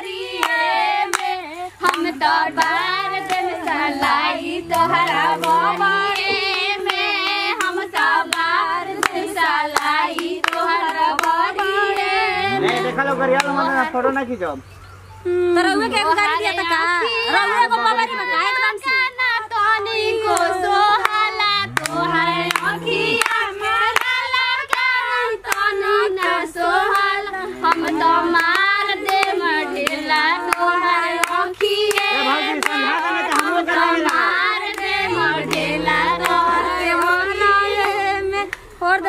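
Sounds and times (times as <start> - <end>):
hands clapping: 0.0 - 13.8, 20.3 - 23.4, 25.5 - 37.2
women singing folk song: 0.0 - 13.9, 15.4 - 39.0.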